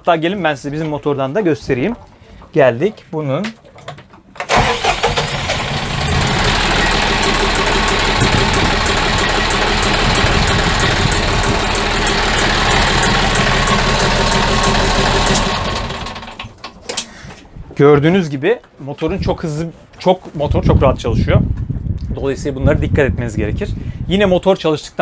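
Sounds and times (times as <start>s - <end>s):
boat diesel engine idling: 4.5s - 16.5s.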